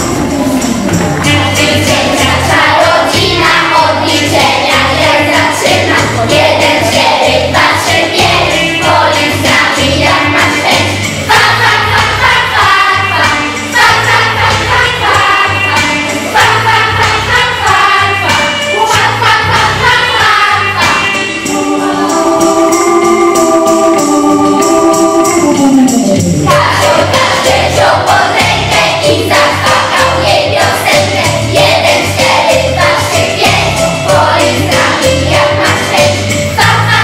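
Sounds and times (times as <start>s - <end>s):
children singing: 0.0s - 37.0s
instrumental music with steady beat: 0.0s - 37.0s.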